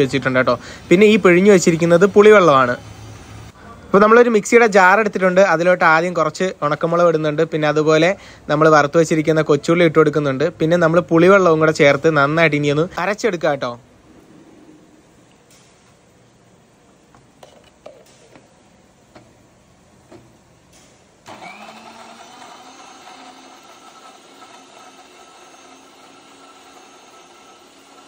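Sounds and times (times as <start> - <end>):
mixer grinder motor whining: 21.3 - 28.0.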